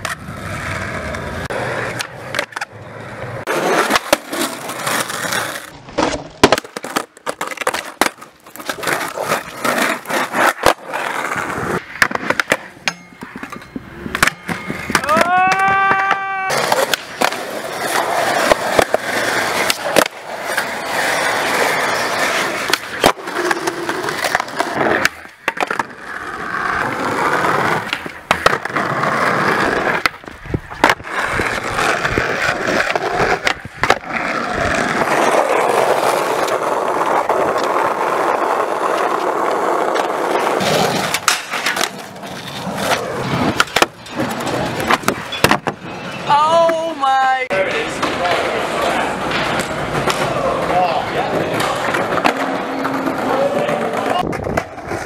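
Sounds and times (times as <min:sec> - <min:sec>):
skateboard clacks: 0:00.0 - 0:47.0, 0:47.7 - 0:55.0
skateboard wheels on asphalt: 0:00.0 - 0:55.0.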